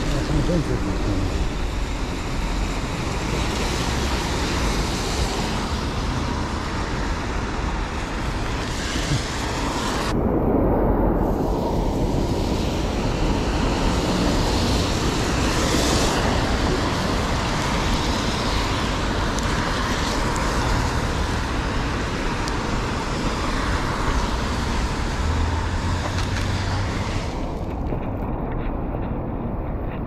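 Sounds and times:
city traffic on wet roads: 0.0 - 10.2, 11.2 - 30.0.

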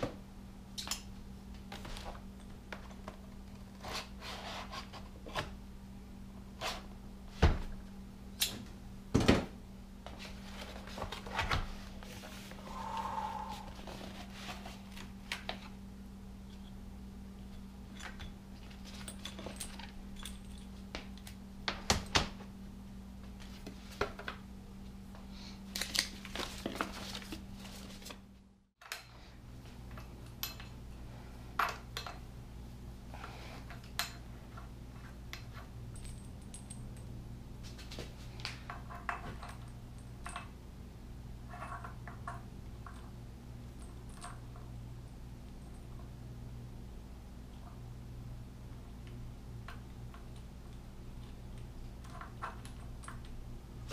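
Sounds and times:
steady low hum: 0.0 - 53.9
metal parts and tools clinking: 17.9 - 20.7.

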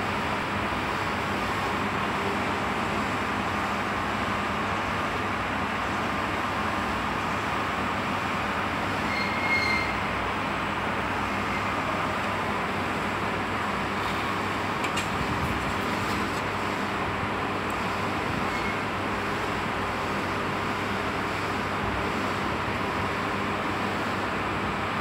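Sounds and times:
short high whistle-like tone: 9.1 - 10.0.

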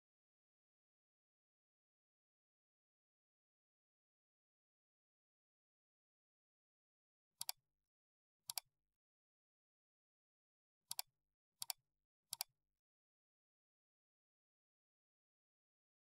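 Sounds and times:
computer mouse clicks: 7.4 - 7.6, 8.5 - 8.7, 10.9 - 12.5.

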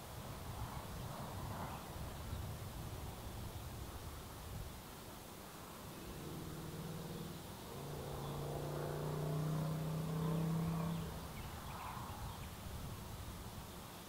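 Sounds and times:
faint outdoor hiss: 0.0 - 14.0
low droning hum: 5.8 - 11.2.

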